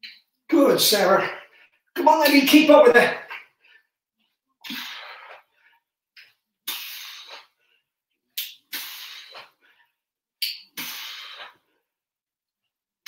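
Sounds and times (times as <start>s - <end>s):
man breathing hard: 4.6s - 5.9s, 8.7s - 10.0s, 10.8s - 11.9s.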